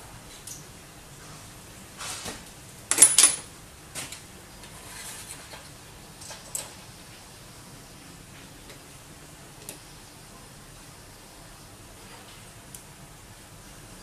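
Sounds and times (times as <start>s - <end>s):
metal-on-metal clinks: 2.9s - 3.5s.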